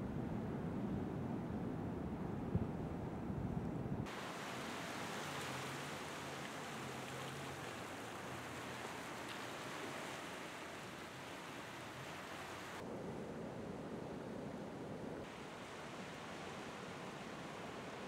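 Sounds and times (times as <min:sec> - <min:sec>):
surf washing over rocks: 0:04.1 - 0:12.8, 0:15.3 - 0:18.0.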